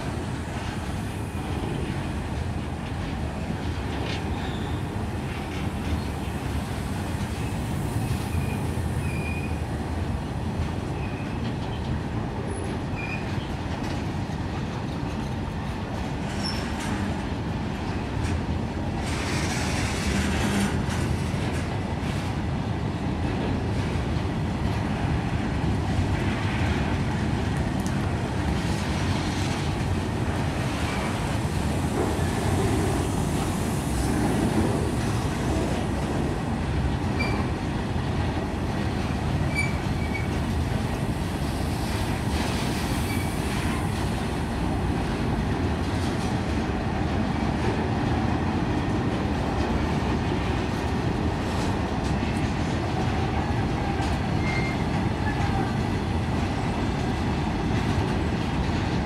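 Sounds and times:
freight train wheels rumbling on rail: 0.0 - 59.0
high wheel squeals: 54.4 - 55.4.

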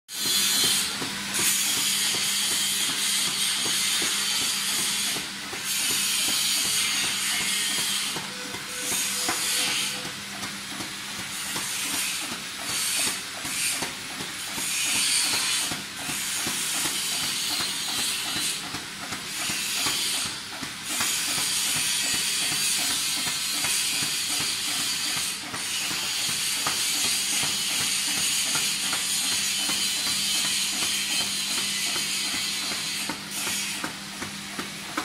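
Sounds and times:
cutting machine hissing: 0.1 - 18.7
rapid mechanical clicking: 0.2 - 35.0.

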